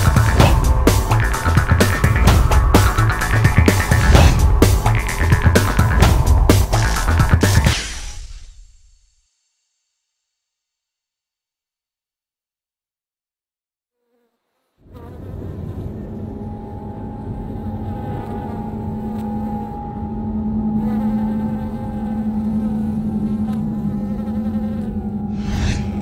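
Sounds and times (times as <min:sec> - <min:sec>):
low rumble: 0:00.0 - 0:07.7, 0:14.9 - 0:26.0
steady buzzing drone: 0:00.0 - 0:07.7, 0:15.2 - 0:26.0
brief rushing swell: 0:00.2 - 0:08.7, 0:23.0 - 0:26.0.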